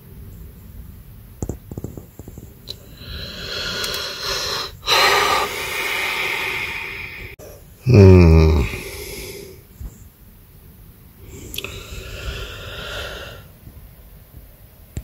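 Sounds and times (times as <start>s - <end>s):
person breathing out heavily: 2.8s - 9.6s, 11.2s - 13.5s.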